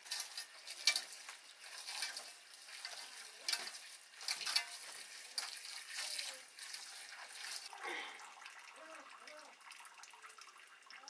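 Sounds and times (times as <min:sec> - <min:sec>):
hands swishing water: 0:00.0 - 0:08.2
water pouring into metal bowl: 0:00.0 - 0:11.0
water splashes: 0:00.0 - 0:11.0.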